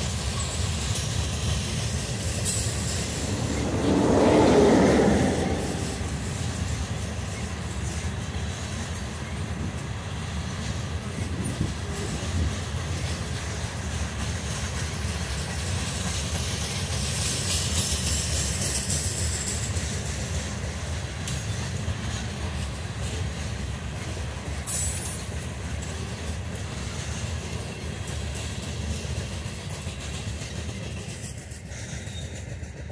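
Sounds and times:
train wheels rumbling on rail: 0.0s - 32.9s
hissing wheel noise: 2.5s - 7.1s.

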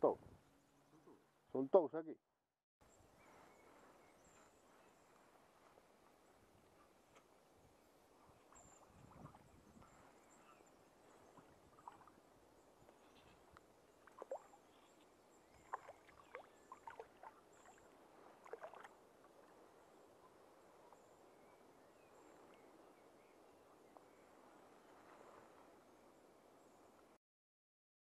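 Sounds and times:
small water splashes: 11.3s - 12.2s, 12.9s - 19.7s.

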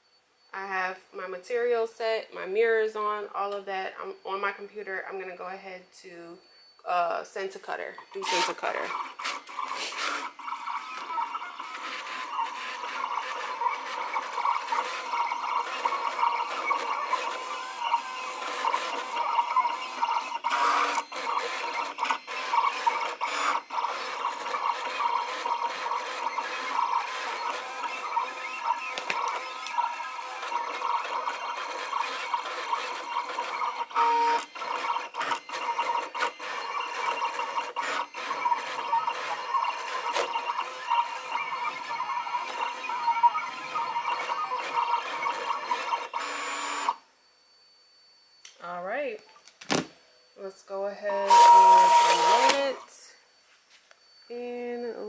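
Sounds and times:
vinyl cutter motors whirring: 7.6s - 47.0s, 51.0s - 53.0s.

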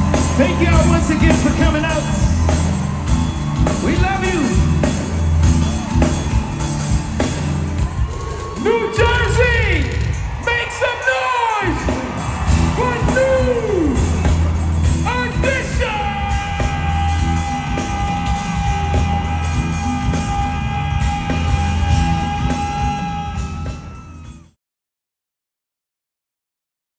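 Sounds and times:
live rhythm and blues band: 0.0s - 8.6s, 11.9s - 24.3s.

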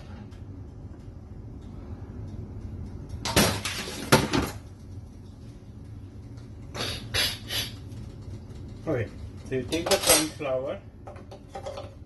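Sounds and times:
kitchen utensils clinking: 9.6s - 10.6s.

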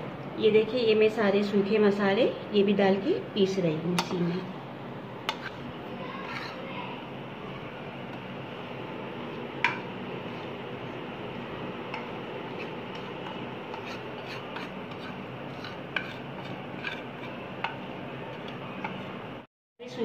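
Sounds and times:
spoon scraping ceramic plate: 5.3s - 5.6s, 6.2s - 6.6s, 11.9s - 19.1s.

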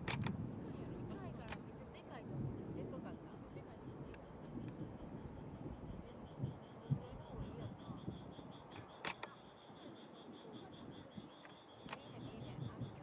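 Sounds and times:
insect chirping: 0.0s - 13.0s
murmuring voices: 5.6s - 13.0s.

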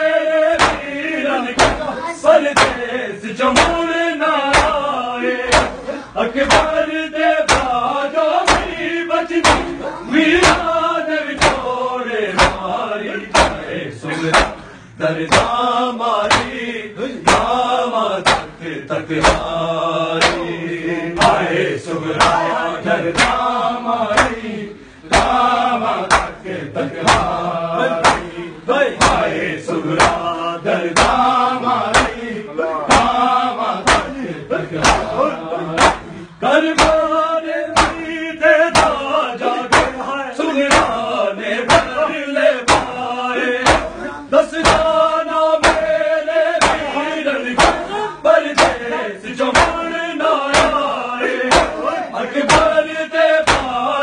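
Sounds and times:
men chanting in unison: 0.0s - 54.0s
hands slapping bare chests: 0.5s - 1.0s, 1.6s - 1.9s, 2.6s - 2.8s, 3.6s - 3.8s, 4.5s - 4.9s, 5.5s - 5.8s, 6.4s - 6.8s, 7.4s - 7.8s, 8.4s - 8.8s, 9.4s - 9.8s, 10.4s - 11.7s, 12.4s - 12.7s, 13.3s - 13.7s, 14.3s - 14.6s, 15.3s - 15.6s, 16.2s - 16.6s, 17.3s - 17.6s, 18.2s - 18.5s, 19.2s - 19.6s, 20.2s - 20.5s, 21.2s - 21.5s, 22.2s - 22.5s, 23.1s - 23.5s, 24.1s - 24.4s, 25.1s - 26.4s, 27.0s - 27.4s, 28.0s - 28.4s, 29.0s - 29.3s, 29.9s - 30.3s, 31.0s - 32.3s, 32.9s - 34.2s, 34.8s - 35.2s, 35.8s - 36.1s, 36.8s - 37.1s, 37.8s - 38.0s, 38.7s - 39.1s, 39.7s - 40.0s, 40.7s - 41.1s, 41.7s - 42.0s, 42.7s - 43.0s, 43.6s - 44.0s, 44.6s - 45.0s, 45.6s - 46.0s, 46.6s - 46.9s, 47.6s - 47.9s, 48.6s - 48.8s, 49.5s - 49.8s, 50.5s - 50.9s, 51.5s - 51.8s, 52.5s - 52.7s, 53.4s - 53.8s.

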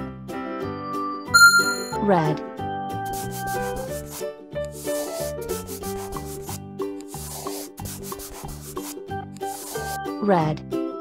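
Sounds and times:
instrumental children's tune: 1.4s - 2.4s
marker scratching on paper: 3.0s - 10.0s.

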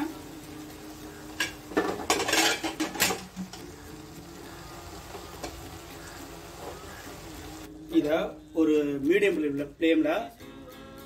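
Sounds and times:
quiet stovetop background: 0.0s - 9.3s
utensils clinking on cooking pan: 1.3s - 3.6s.

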